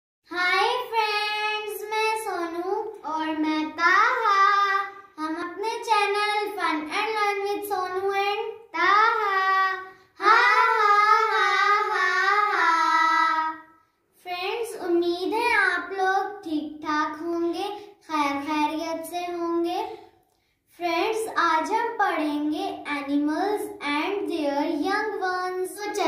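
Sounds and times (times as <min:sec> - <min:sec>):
children singing: 0:09.3 - 0:13.7.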